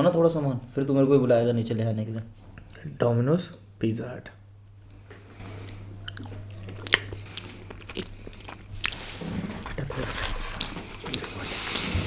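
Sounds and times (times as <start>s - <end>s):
wet chewing sounds: 4.9s - 11.9s.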